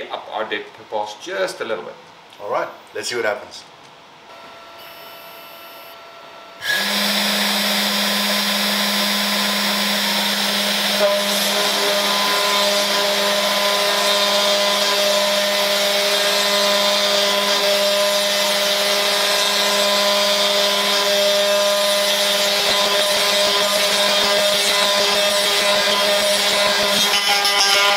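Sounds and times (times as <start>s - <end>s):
router spindle humming: 4.3s - 27.9s
hiss of cutting acrylic: 6.6s - 27.9s.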